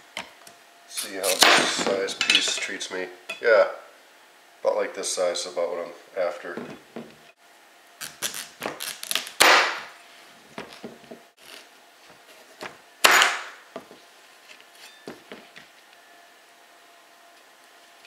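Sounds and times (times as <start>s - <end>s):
loud knife chops with crunch: 9.4s - 9.9s, 13.0s - 13.6s.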